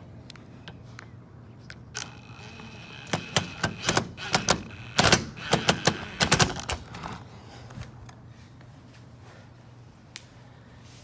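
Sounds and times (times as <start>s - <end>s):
impact driver rattling: 3.0s - 6.8s.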